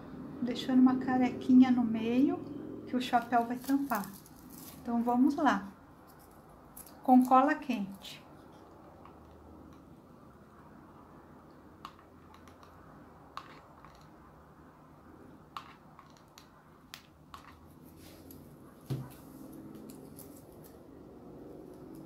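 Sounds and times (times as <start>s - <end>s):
knock: 18.9s - 19.1s.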